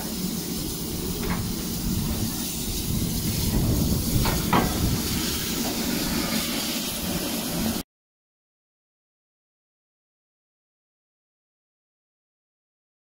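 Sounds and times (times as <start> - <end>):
steam hissing: 0.0 - 7.8
low rumble: 0.9 - 5.5.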